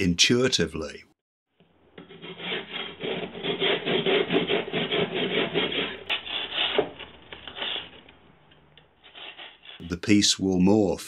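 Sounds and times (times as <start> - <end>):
metal tool rasping across clay: 1.9 - 9.9.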